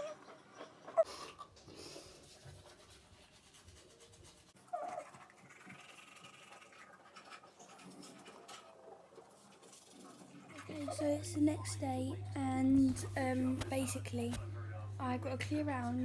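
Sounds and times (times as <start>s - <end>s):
breathing: 1.0s - 2.2s
toothbrush scrubbing teeth: 1.1s - 11.8s.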